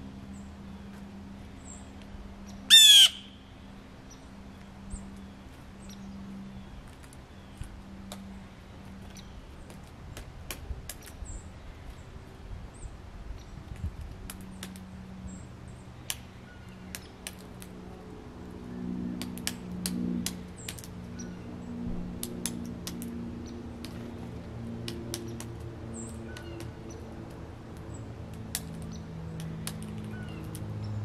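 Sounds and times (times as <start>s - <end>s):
low droning hum: 0.0s - 31.0s
small birds chirping: 24.9s - 27.2s.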